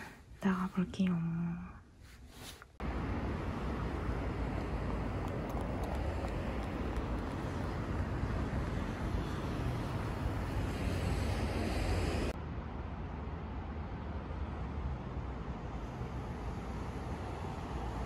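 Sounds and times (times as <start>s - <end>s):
street traffic rumble: 2.8s - 18.0s.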